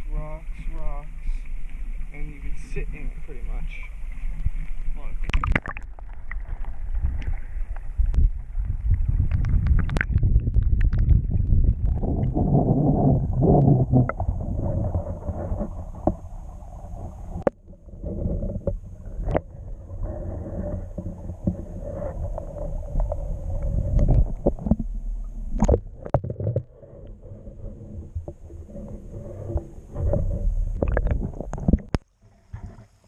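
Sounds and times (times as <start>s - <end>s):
muffled underwater water rumble: 0.0s - 33.0s.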